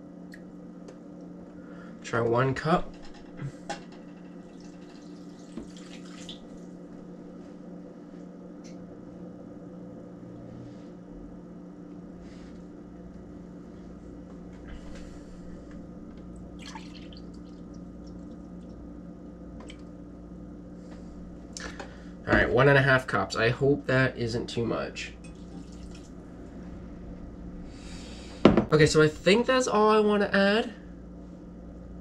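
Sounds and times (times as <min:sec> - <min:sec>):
steady low hum: 0:00.0 - 0:32.0
liquid pouring into a glass cup: 0:16.6 - 0:17.6, 0:25.2 - 0:26.1.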